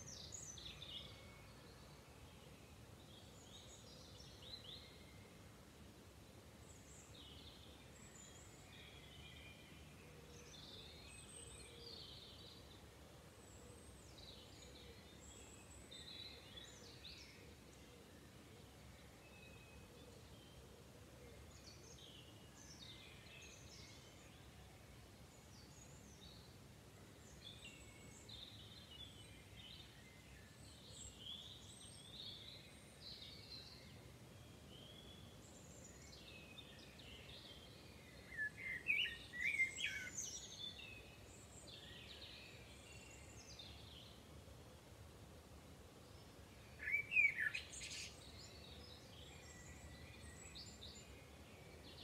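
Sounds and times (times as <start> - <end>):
songbirds singing: 0.0 - 5.6, 6.4 - 52.0
faint background noise: 0.0 - 52.0.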